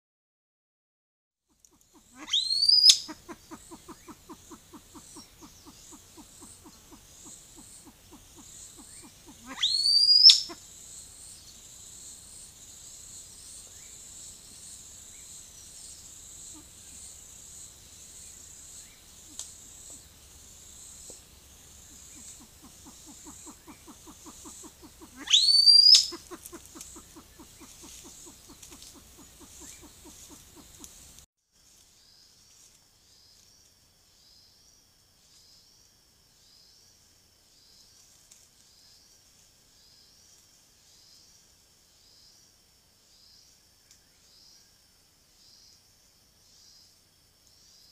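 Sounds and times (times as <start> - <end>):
pheasant low clucks: 1.5 - 10.7, 19.1 - 31.2
pheasant whistled calls: 1.7 - 10.6, 21.9 - 31.0.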